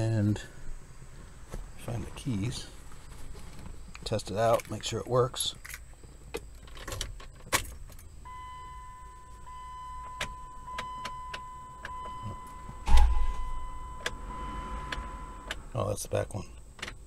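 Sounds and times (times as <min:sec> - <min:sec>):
steady high whine: 0:08.3 - 0:17.0.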